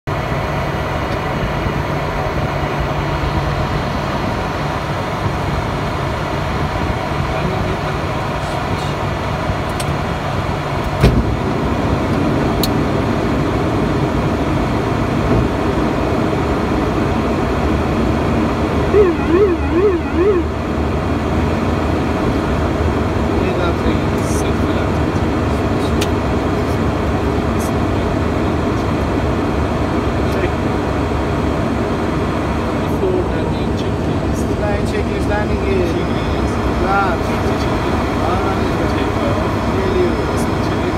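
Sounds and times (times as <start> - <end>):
turboprop engine drone: 0.1 - 40.9
thump: 11.0 - 11.3
warbling tone: 18.9 - 20.7.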